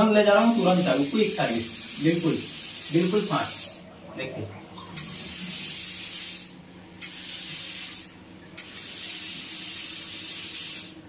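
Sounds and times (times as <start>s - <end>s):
tap water pouring into basin: 0.2s - 11.0s.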